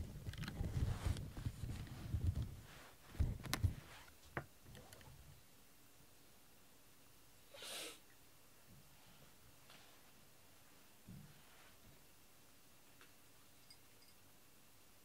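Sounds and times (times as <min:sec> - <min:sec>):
cat rubbing against microphone: 0:00.6 - 0:04.2
short hissing rush: 0:07.5 - 0:08.0.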